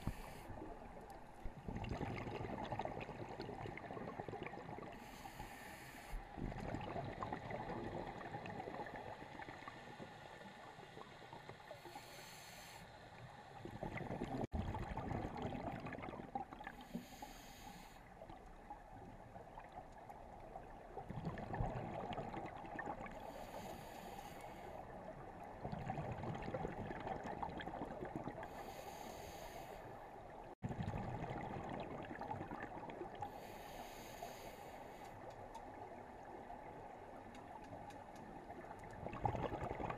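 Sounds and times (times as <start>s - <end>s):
hissing regulator inhale: 0.0s - 0.6s, 4.9s - 6.3s, 9.9s - 13.6s, 16.8s - 18.1s, 23.1s - 24.8s, 28.4s - 30.1s, 33.2s - 35.2s
exhaled bubbles rumbling: 0.0s - 5.0s, 6.3s - 10.2s, 13.6s - 16.8s, 18.2s - 23.2s, 25.0s - 28.5s, 30.4s - 33.4s, 38.4s - 39.9s.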